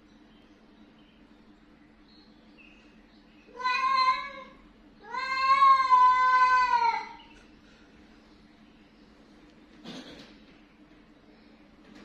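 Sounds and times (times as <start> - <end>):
angry cat yowling: 3.5 - 7.2.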